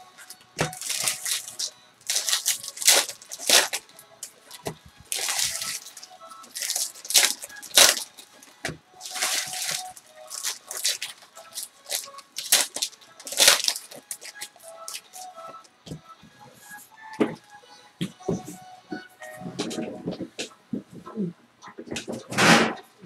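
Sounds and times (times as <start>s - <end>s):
foil wrappers crinkling and tearing: 0.0s - 15.7s.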